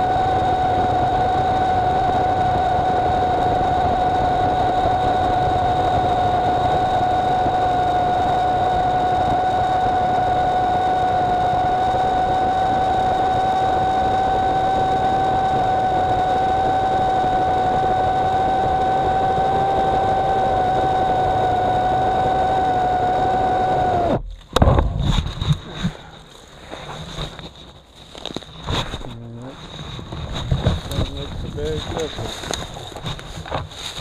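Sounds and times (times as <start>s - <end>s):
electric chainsaw whining: 0.0s - 24.2s.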